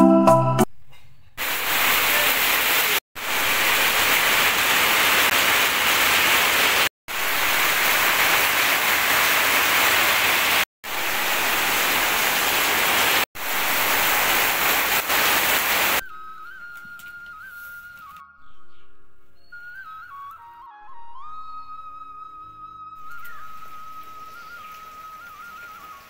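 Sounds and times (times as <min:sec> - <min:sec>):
heavy rain on a tin roof: 0:01.4 - 0:16.0.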